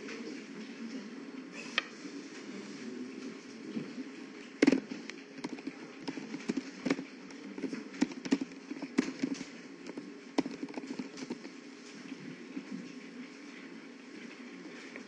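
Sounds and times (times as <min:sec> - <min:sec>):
steady low hum: 0:00.0 - 0:15.0
computer keyboard typing: 0:04.6 - 0:11.5.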